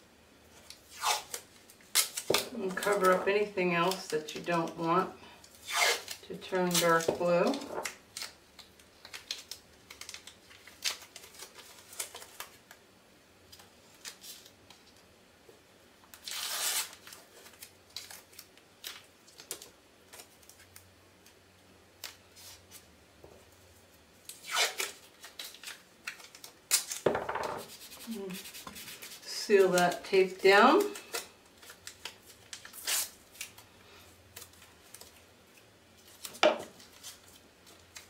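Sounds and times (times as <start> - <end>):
tape crackling: 0.6 - 12.8, 24.2 - 38.0
tape ripping: 0.9 - 3.2, 5.6 - 12.6, 16.1 - 20.6, 24.3 - 30.0, 30.7 - 33.6.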